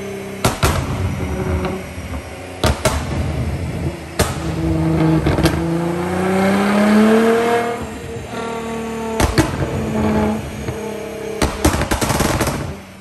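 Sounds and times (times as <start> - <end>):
car engine revving: 0.0 - 13.0
sharp exhaust bangs: 0.0 - 13.0.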